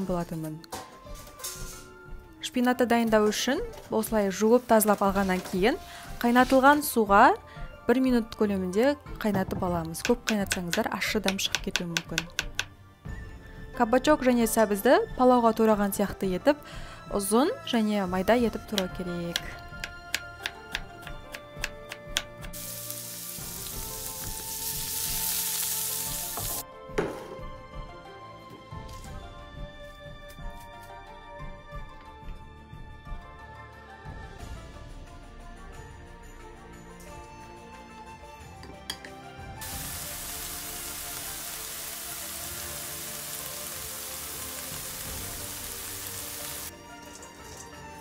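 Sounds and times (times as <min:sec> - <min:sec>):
carrot strips sizzling in oil: 0:22.4 - 0:26.6, 0:39.6 - 0:47.7.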